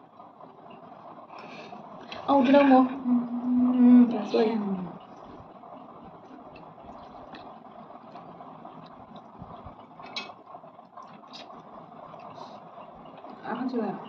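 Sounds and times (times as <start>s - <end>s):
low background noise: 0.0s - 14.0s
chewing: 5.1s - 13.4s.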